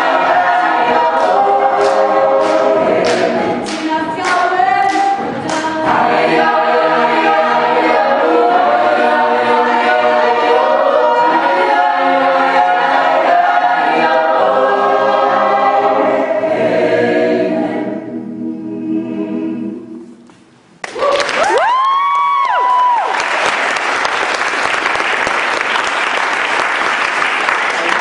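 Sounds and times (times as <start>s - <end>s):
choir singing a cappella: 0.0s - 20.2s
applause and cheers: 20.8s - 28.0s.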